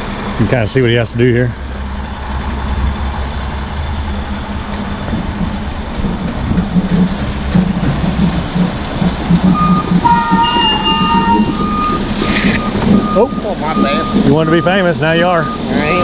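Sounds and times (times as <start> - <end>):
diesel engine running: 0.0 - 16.0
reversing alarm beeping: 9.4 - 16.0.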